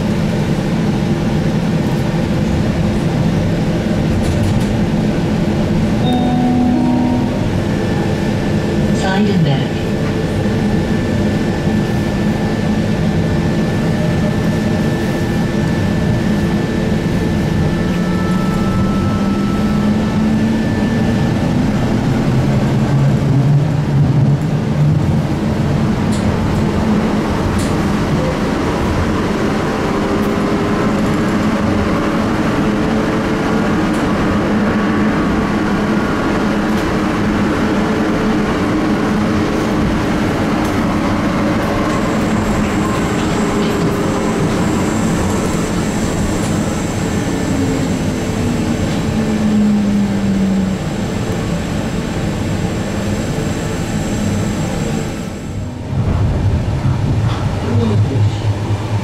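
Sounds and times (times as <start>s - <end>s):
tram wheels rolling on rail: 0.0s - 6.3s, 17.0s - 59.0s
tram drive humming: 0.0s - 59.0s.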